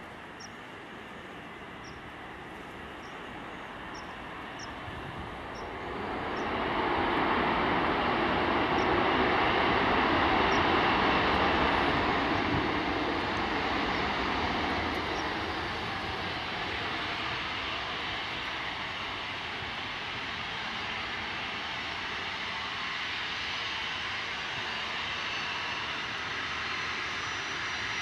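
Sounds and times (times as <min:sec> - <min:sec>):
faint bird chirps: 0:00.4 - 0:00.6, 0:03.0 - 0:04.8
jet engines spooling up: 0:00.5 - 0:28.0.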